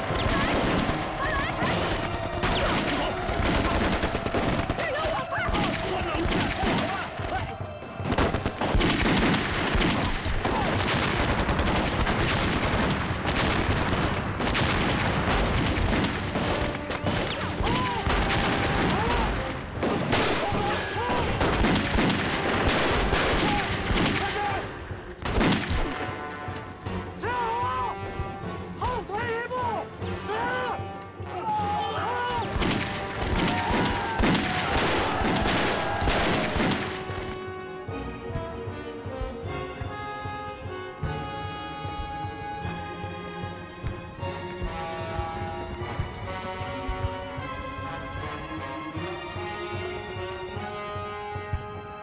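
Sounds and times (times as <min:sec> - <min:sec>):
rifles and machine guns firing: 0:00.0 - 0:07.4, 0:08.1 - 0:26.2, 0:32.5 - 0:37.4.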